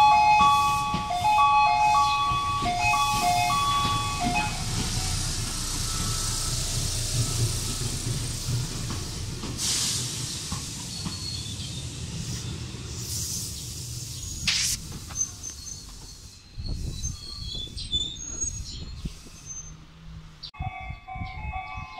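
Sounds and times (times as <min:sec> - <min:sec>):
electronic chime melody: 0:00.0 - 0:04.7
electric train humming: 0:00.0 - 0:16.6
wind on the microphone: 0:16.4 - 0:19.8, 0:20.6 - 0:21.9.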